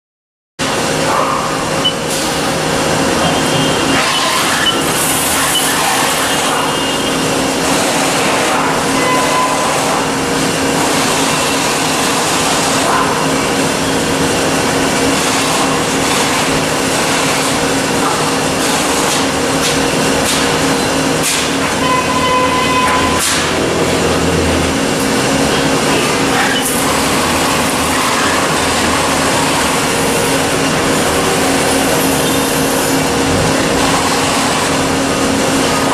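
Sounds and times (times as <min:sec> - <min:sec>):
steady machine tones: 0:00.6 - 0:07.9
lathe hum and whir: 0:00.6 - 0:35.9.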